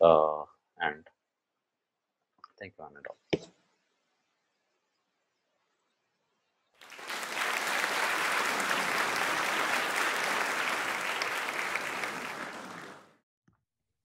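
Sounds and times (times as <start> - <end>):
applause: 6.8 - 13.2.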